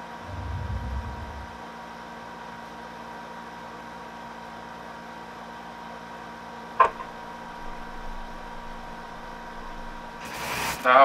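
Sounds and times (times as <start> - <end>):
electrical hum and hiss: 0.0 - 1.9, 6.6 - 11.0.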